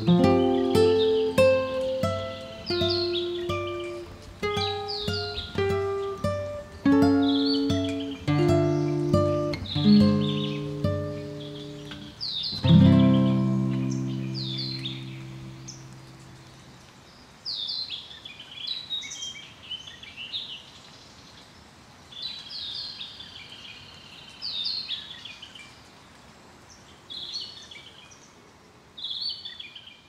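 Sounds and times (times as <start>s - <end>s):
guitar music: 0.0s - 16.4s
songbirds singing: 0.0s - 30.0s.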